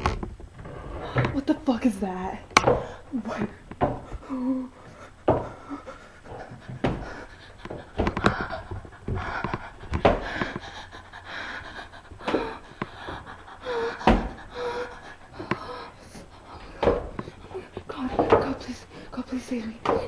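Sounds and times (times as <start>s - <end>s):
thumps and bumps of movement: 0.0s - 20.0s
woman panting in fright: 4.1s - 17.9s.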